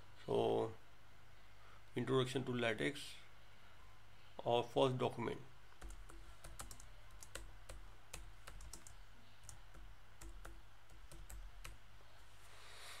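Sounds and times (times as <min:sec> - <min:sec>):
keyboard typing: 0:05.8 - 0:11.8.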